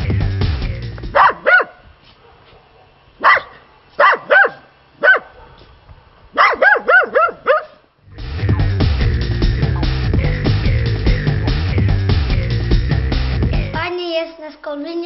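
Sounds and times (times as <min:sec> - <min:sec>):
dog barking: 0:01.1 - 0:07.8.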